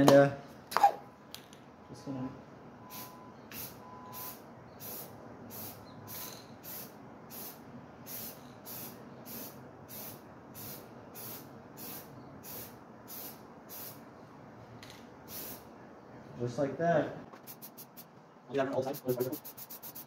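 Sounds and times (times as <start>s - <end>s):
spray paint bursts hissing: 2.9s - 14.0s, 15.3s - 15.7s, 17.4s - 18.1s, 18.8s - 20.0s.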